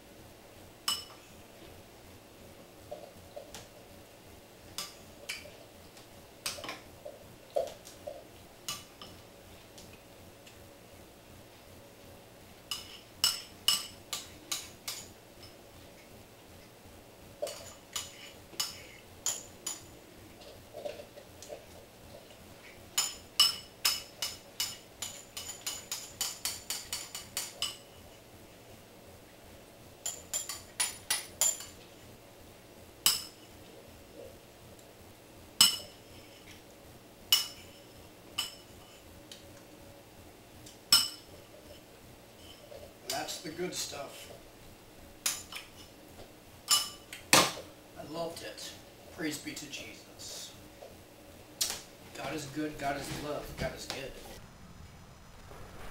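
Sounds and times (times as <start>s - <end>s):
utensil clinking against ceramic bowl: 23.0s - 27.9s.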